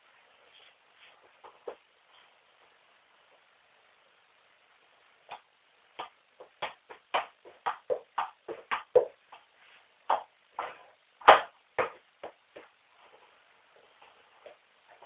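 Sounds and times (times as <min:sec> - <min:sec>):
football being kicked: 0:11.2 - 0:12.0.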